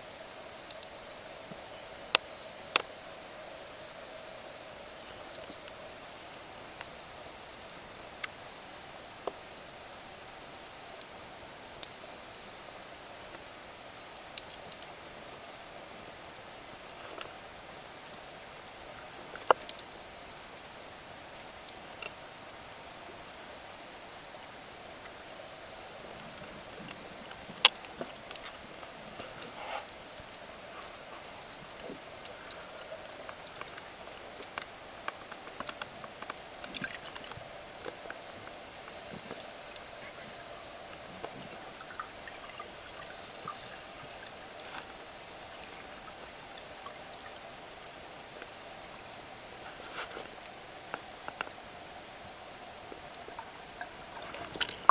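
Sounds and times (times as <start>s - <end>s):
underwater clicks and ticks: 18.1s - 19.9s, 21.4s - 22.2s, 25.0s - 47.4s, 50.9s - 51.6s, 52.2s - 54.9s
underwater hiss: 54.0s - 54.9s.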